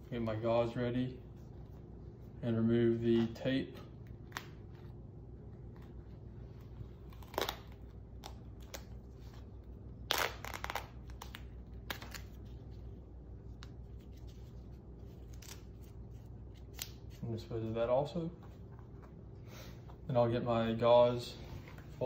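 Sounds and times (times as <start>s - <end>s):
low steady hum: 0.0s - 22.0s
tape peeling with crackling rips: 3.2s - 17.2s.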